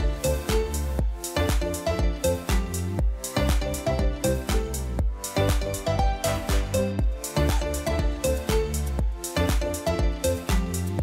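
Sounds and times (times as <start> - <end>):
electronic music with deep bass: 0.0 - 11.0.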